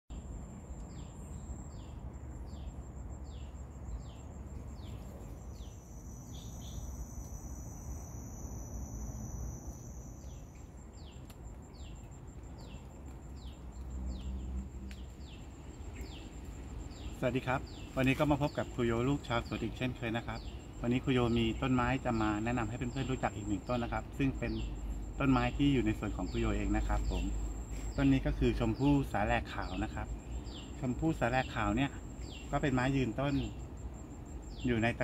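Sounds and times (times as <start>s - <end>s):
short insect calls: 0.1s - 35.0s
pulsing insect buzz: 4.8s - 11.1s.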